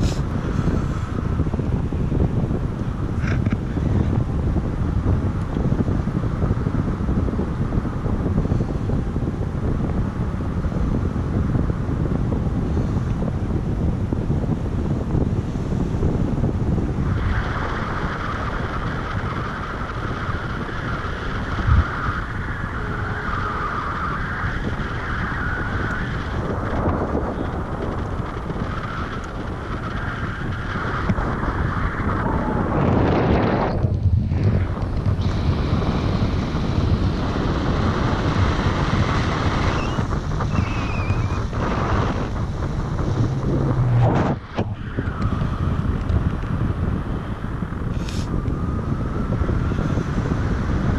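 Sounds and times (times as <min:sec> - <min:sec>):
wind rushing on microphone: 0:00.0 - 0:50.9
low gust thump: 0:41.6 - 0:44.8.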